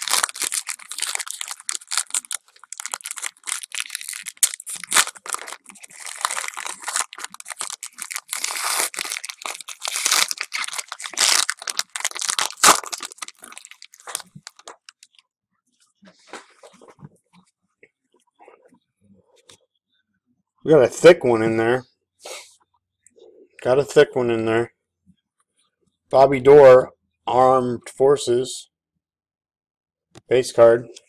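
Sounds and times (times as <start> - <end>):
foil wrapper crinkling: 0.0 - 15.2
foil wrapper tearing: 0.0 - 15.2.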